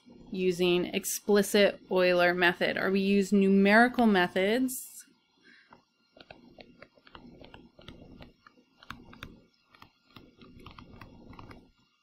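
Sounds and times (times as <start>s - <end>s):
stylus tapping on tablet screen: 5.7s - 11.8s.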